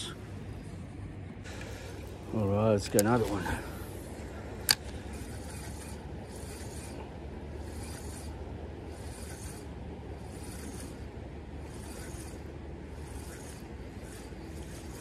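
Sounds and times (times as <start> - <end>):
soft hissing rasp: 0.0 - 15.0.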